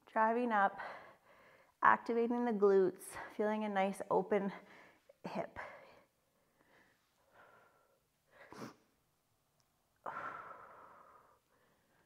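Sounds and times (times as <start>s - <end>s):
woman breathing: 0.7s - 1.8s, 4.6s - 8.9s, 10.0s - 12.0s.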